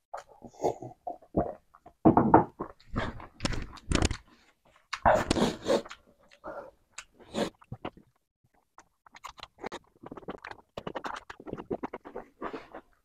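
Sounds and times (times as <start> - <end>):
wet chewing and lip-smacking: 4.8 - 13.0.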